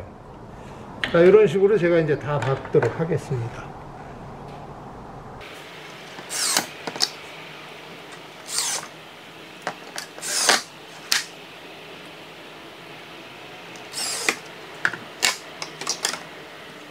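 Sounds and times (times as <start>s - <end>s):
cordless drill driving screws into wood: 6.2s - 7.1s, 8.5s - 8.9s, 9.9s - 11.3s, 13.9s - 14.4s, 15.2s - 16.2s.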